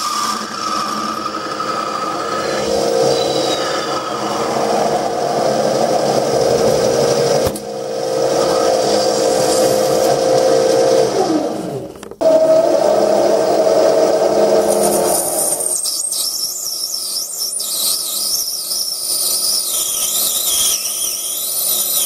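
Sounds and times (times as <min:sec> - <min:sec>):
lathe motor whining: 0:00.0 - 0:15.9.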